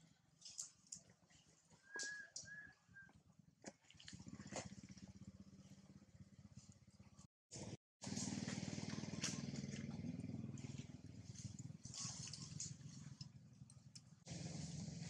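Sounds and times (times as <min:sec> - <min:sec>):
engine running faintly: 0:03.7 - 0:15.0.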